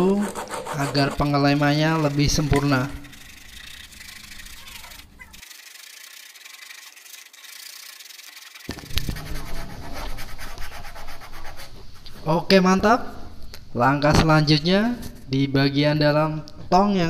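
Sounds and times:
sandpaper scraping plastic: 0:00.0 - 0:12.3.

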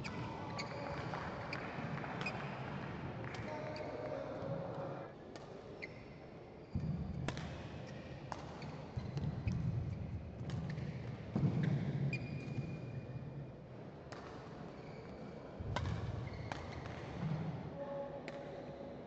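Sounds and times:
indoor hall murmur: 0:00.0 - 0:07.4
shoe squeaks: 0:00.5 - 0:00.9, 0:16.2 - 0:16.5.

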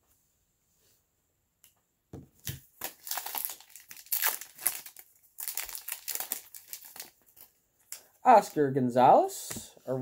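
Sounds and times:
foil wrapper crinkling and tearing: 0:02.8 - 0:08.0.

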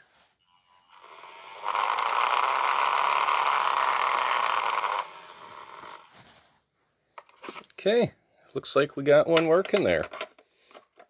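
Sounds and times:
pager vibration buzzing: 0:00.5 - 0:06.1.

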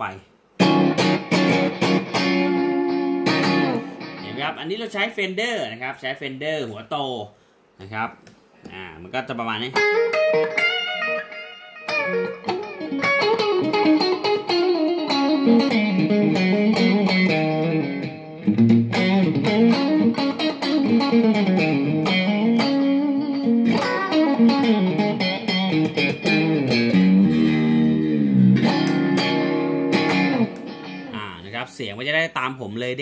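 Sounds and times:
crunchy electric guitar melody: 0:00.6 - 0:04.6, 0:09.7 - 0:31.2.

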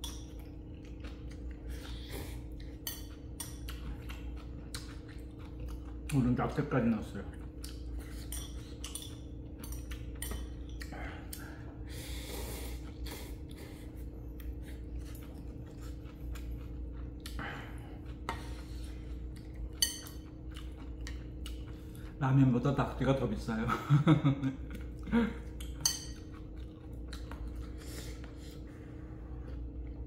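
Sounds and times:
steady low hum: 0:00.0 - 0:30.0
utensils clinking on dishes: 0:19.7 - 0:20.3, 0:25.7 - 0:26.4.

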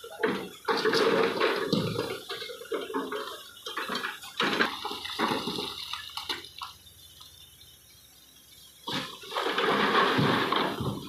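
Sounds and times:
stones clattering into metal truck bed: 0:00.0 - 0:06.5, 0:08.9 - 0:11.0.

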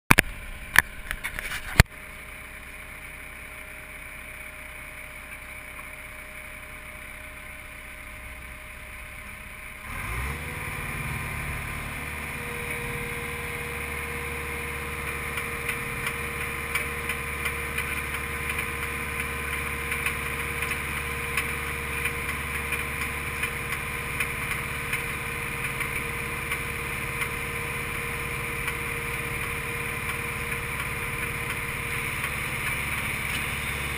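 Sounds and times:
loader engine idling: 0:00.1 - 0:33.9
hydraulic auger whine: 0:09.4 - 0:33.9.

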